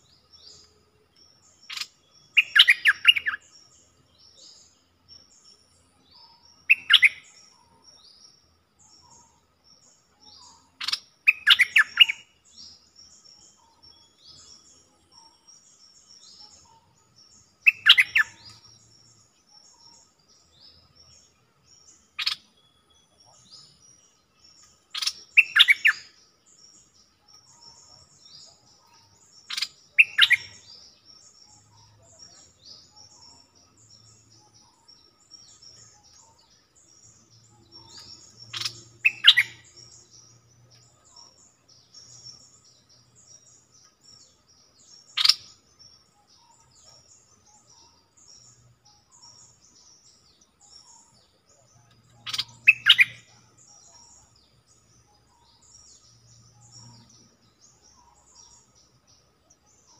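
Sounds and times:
high chirps of other birds: 0.0 - 59.9
bird singing bubbling phrases: 1.6 - 4.0, 5.4 - 7.7, 10.4 - 12.4, 17.5 - 18.7, 21.2 - 26.2, 27.4 - 40.2, 44.9 - 58.9.

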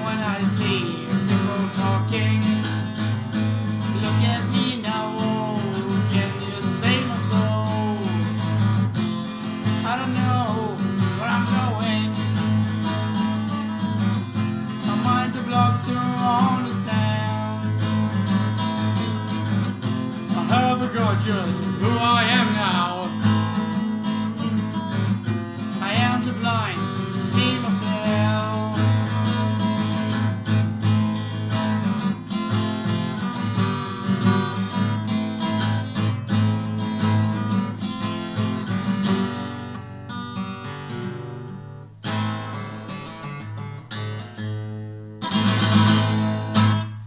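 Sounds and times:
acoustic guitar strumming: 0.0 - 47.0.

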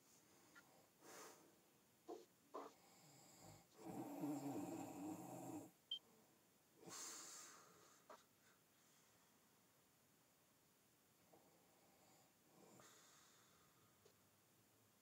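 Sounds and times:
marker pen on whiteboard: 2.0 - 2.8, 8.0 - 8.6.

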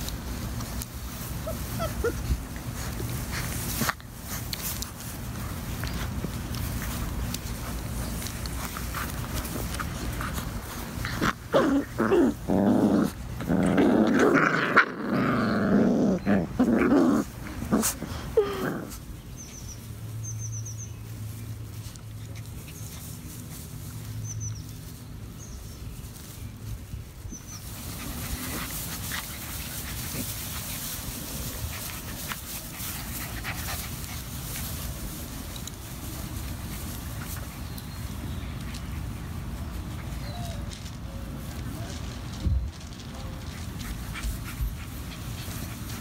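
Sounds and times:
puppies growling: 0.0 - 19.3.

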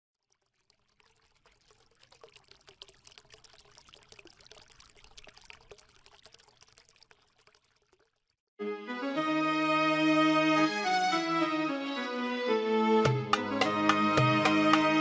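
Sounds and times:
water pouring and trickling: 0.1 - 8.5
music: 8.6 - 15.0.

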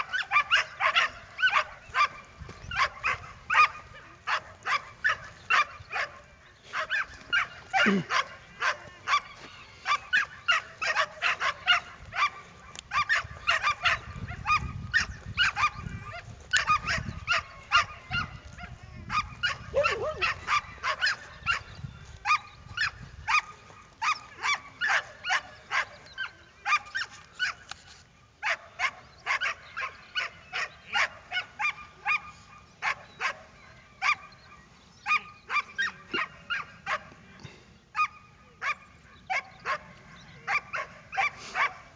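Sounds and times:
dog barking and yelping: 0.0 - 27.7, 28.4 - 34.4, 35.1 - 37.1, 40.5 - 41.9.

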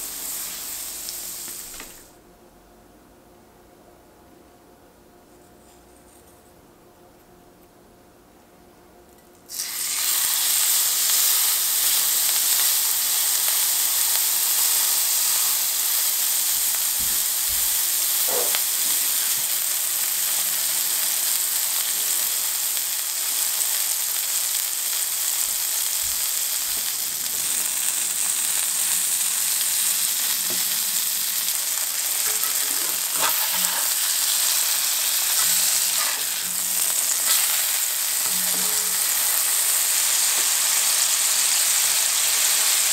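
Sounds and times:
burger patty sizzling in skillet: 0.0 - 2.1, 9.5 - 42.9.

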